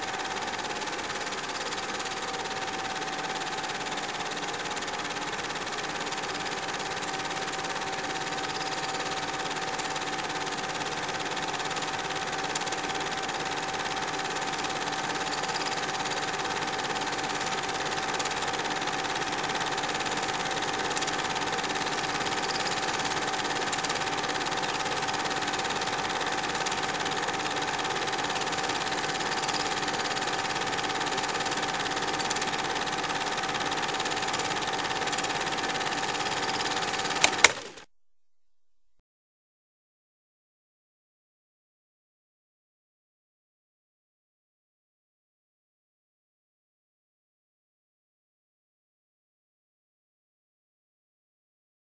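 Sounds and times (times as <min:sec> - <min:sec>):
film projector whirring: 0:00.0 - 0:37.9.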